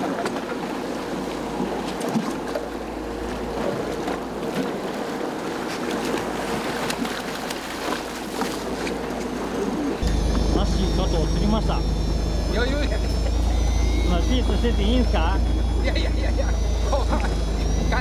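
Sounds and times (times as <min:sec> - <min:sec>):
water washing against hull: 0:00.0 - 0:10.6
faint steady hum: 0:09.1 - 0:18.0.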